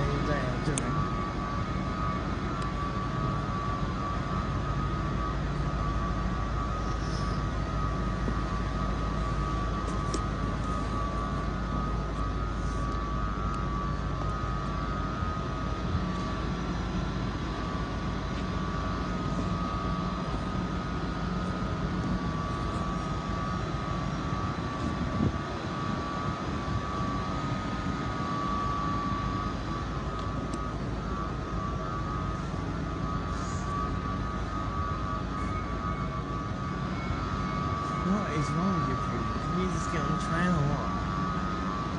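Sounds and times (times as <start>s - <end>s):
high whine: 0.0s - 41.9s
train hum: 0.0s - 41.9s.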